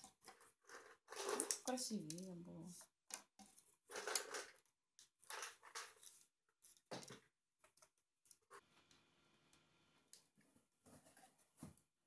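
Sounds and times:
puzzle pieces rustling and clicking: 0.0 - 8.6.

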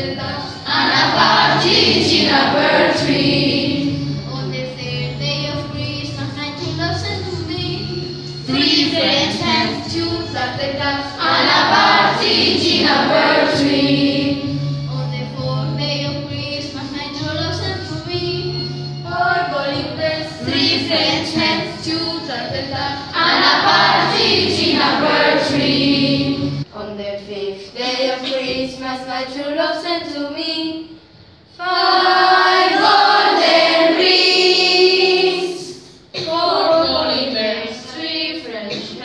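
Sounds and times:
children singing in chorus: 0.0 - 4.1, 11.2 - 14.6, 19.2 - 21.9, 23.1 - 26.6, 31.6 - 39.0.

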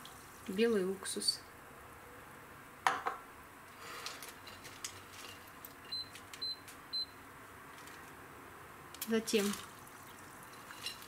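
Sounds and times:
water heating in steel pot: 9.0 - 11.0.

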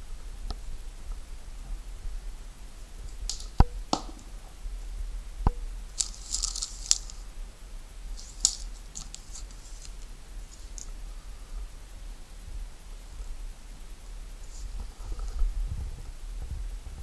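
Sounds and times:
plastic bag and card crinkling: 6.0 - 7.3, 8.2 - 11.0.

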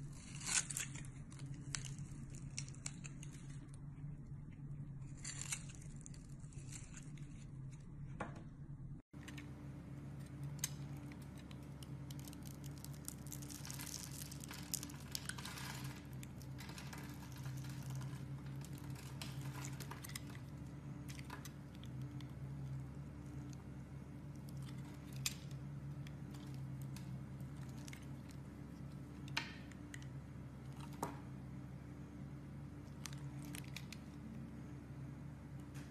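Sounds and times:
knife scraping soap: 0.0 - 3.6
steady low hum: 0.0 - 35.9.

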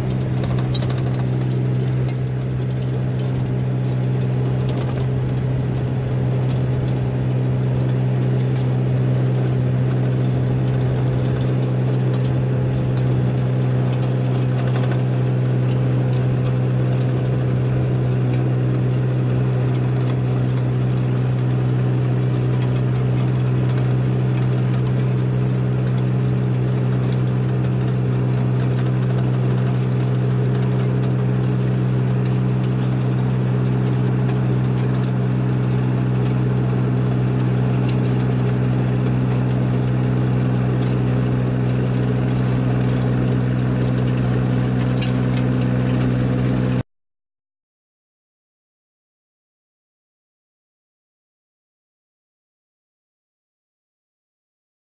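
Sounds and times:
track loader engine running: 0.0 - 46.8.

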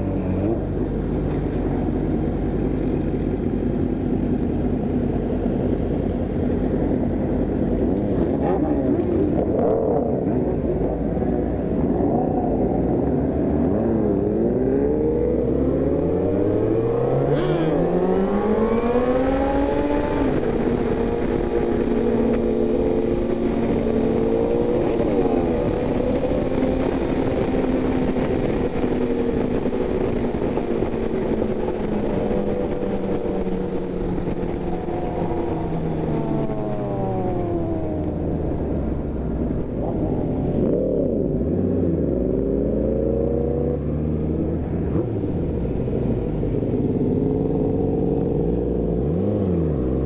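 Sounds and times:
motorcycle engine running: 0.0 - 49.0
wind rush: 7.6 - 46.8.

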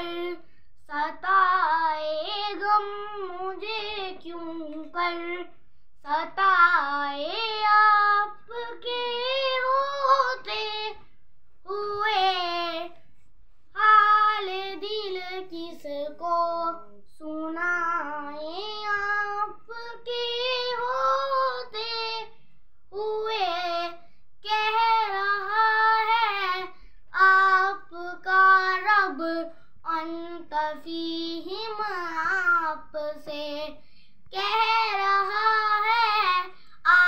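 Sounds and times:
boy singing unaccompanied: 0.0 - 11.0, 11.6 - 13.0, 13.7 - 37.0.

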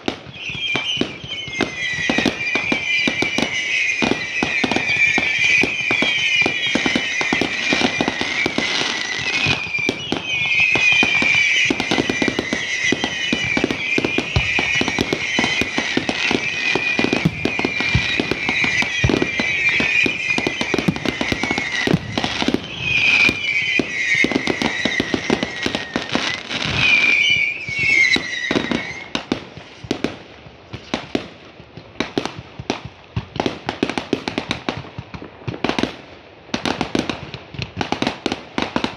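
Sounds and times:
fireworks crackling and banging: 0.0 - 38.9
high-pitched whistle: 0.2 - 30.0.

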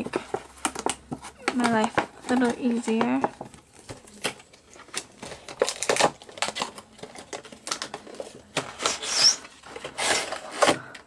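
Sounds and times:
cardboard box rustling and tearing: 0.0 - 10.8
cardboard rasps: 8.6 - 10.8.

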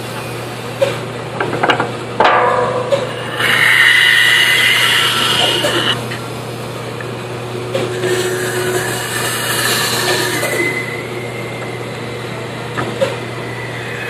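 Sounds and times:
band saw running: 2.8 - 6.4, 7.7 - 14.0.

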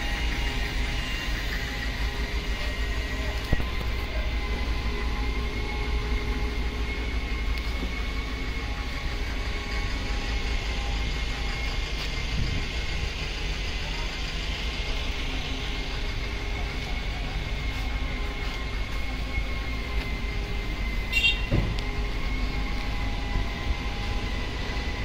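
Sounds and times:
high whine: 0.0 - 25.0
truck engine idling: 0.0 - 25.0.

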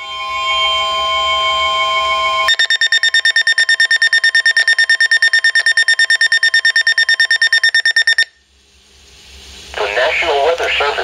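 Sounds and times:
steady warning alarm tone: 0.0 - 8.4
rapid even beeping: 2.5 - 8.3.

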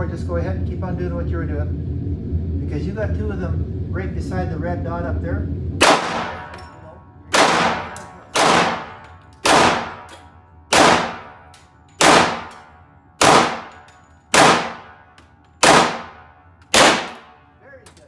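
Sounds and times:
pistol shots indoors: 5.8 - 6.7, 7.3 - 17.5.

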